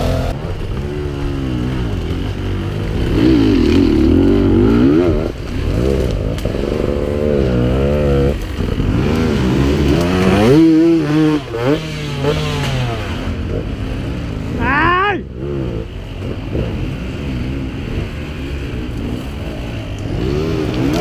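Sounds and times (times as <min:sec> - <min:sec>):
dirt bike engines revving hard: 0:00.0 - 0:21.0.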